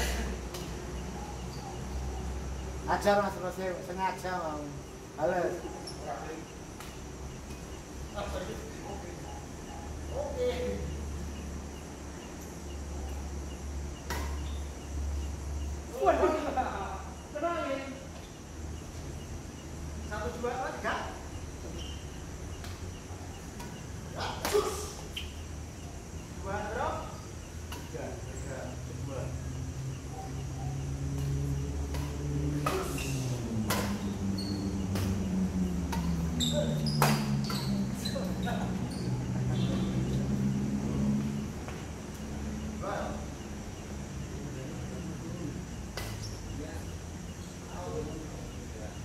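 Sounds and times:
crickets chirping: 0.0 - 49.0
steady low hum: 0.0 - 49.0
badminton racket hitting shuttlecock: 31.1 - 35.3.

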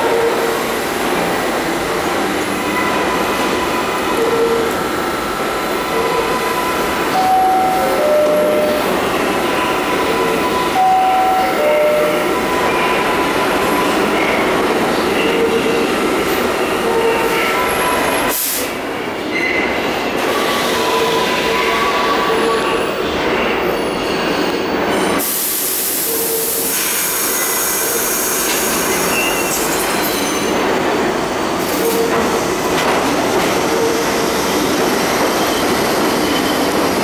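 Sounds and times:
subway train rumble: 0.0 - 37.0.

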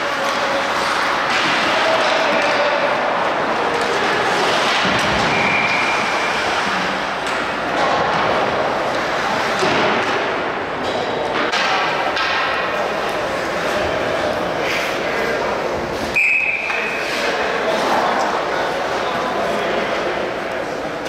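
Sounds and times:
puck and sticks hitting boards: 0.0 - 14.1
ice rink noise: 0.0 - 21.0.

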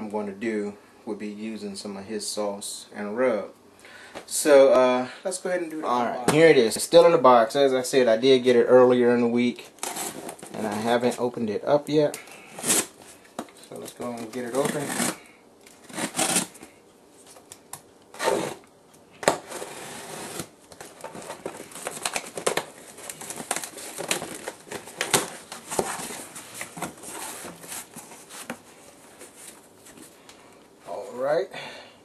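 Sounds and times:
packing tape tearing: 9.8 - 10.6, 12.5 - 13.0, 13.8 - 16.7, 17.4 - 28.6
cardboard flaps rustling: 19.3 - 30.2.

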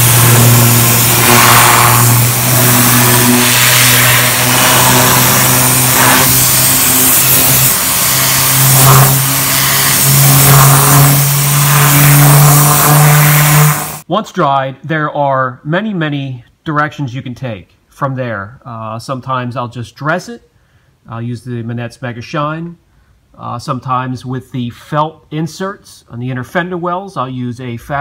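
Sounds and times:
compressed air hissing: 0.0 - 14.0
steady motor hum: 0.0 - 14.0.

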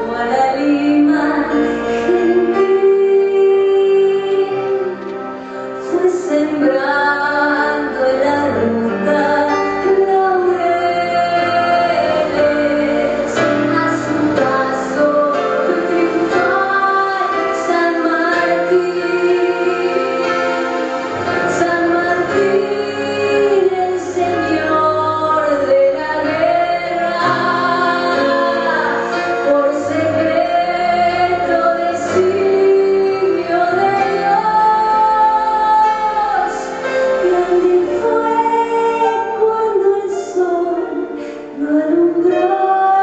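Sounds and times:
woman singing slow song: 0.0 - 20.6, 21.4 - 43.0
live band playing: 7.3 - 41.6.

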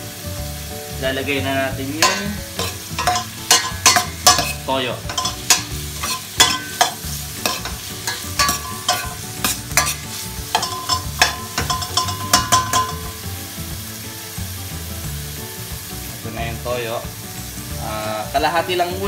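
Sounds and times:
vegetables sizzling in oil: 0.0 - 19.0
metal spoon scraping a pot: 2.0 - 13.1.

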